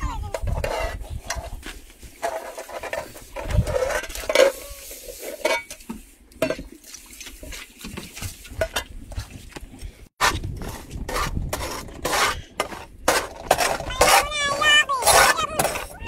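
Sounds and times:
metal bowls and pans clinking: 0:03.8 - 0:05.8.

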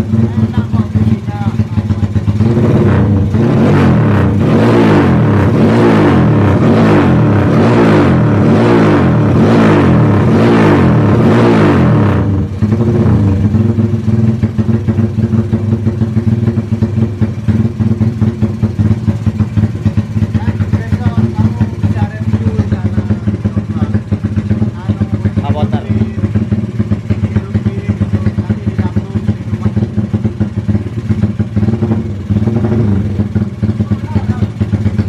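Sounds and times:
engine pulsing idle: 0:00.0 - 0:35.0
motorcycle engine revving: 0:00.0 - 0:35.0.

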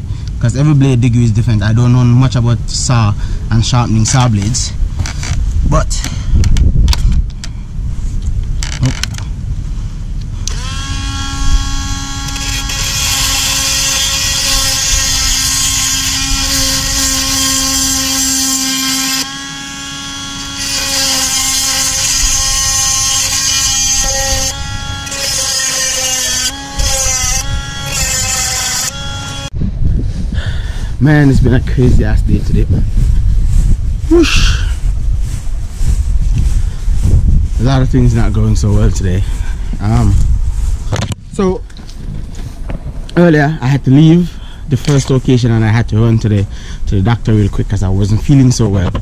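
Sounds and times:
chainsaw sharpener whining and grinding: 0:10.4 - 0:29.5.

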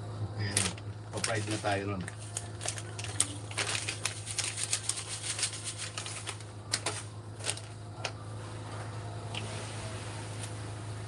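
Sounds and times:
steady low hum: 0:00.0 - 0:11.0
plastic bag crinkling: 0:00.5 - 0:07.8.

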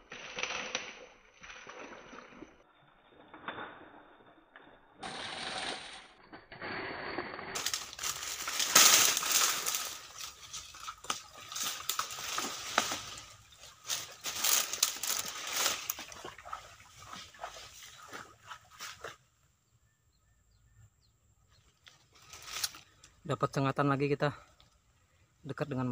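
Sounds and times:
dry fronds crunching underfoot: 0:07.4 - 0:19.2, 0:21.6 - 0:23.1.

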